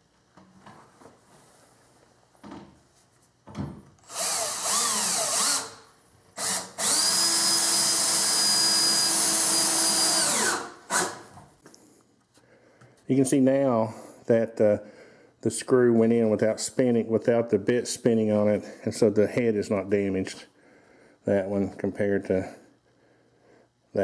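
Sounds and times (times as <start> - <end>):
cordless drill driving screw: 4.0 - 5.8, 6.4 - 11.2.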